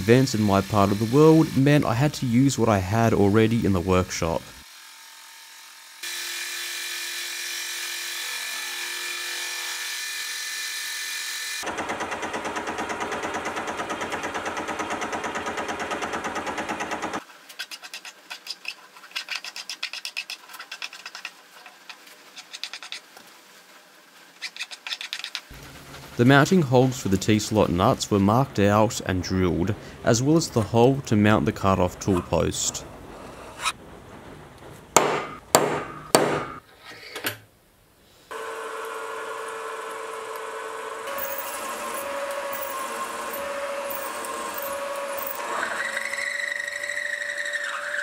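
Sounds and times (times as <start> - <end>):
file scraping metal: 17.5 - 23.1, 33.1 - 33.8, 41.1 - 48.0
hammer striking centre punch: 35.0 - 36.6
mill motor whining: 38.3 - 48.0.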